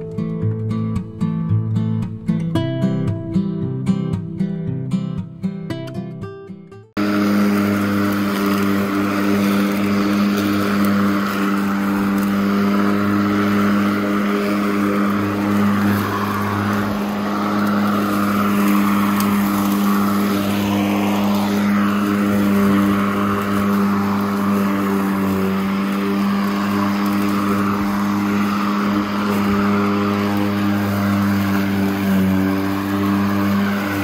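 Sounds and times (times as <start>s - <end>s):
lawn mower cutting grass: 7.0s - 34.0s.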